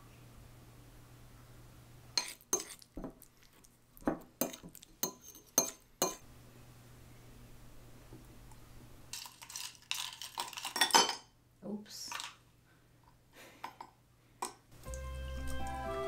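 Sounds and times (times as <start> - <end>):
fork clinking against ceramic bowl: 2.2 - 2.8, 4.4 - 6.2.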